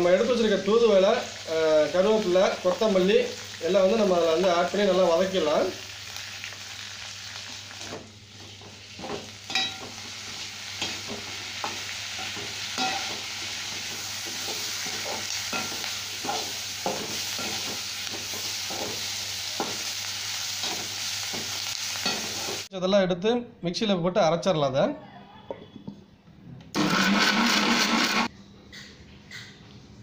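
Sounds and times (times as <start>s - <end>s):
vegetables sizzling in oil: 0.0s - 22.7s
ladle scraping and knocking pan: 10.8s - 19.8s.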